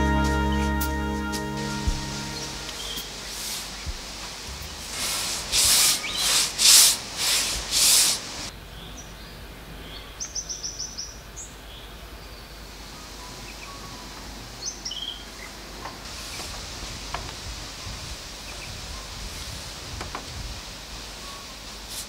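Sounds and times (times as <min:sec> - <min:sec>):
bush ambience: 0:00.0 - 0:08.5
bird chirping: 0:01.6 - 0:05.0.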